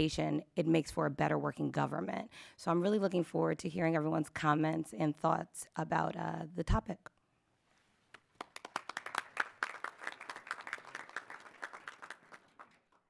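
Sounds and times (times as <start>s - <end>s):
light applause: 8.4s - 13.0s.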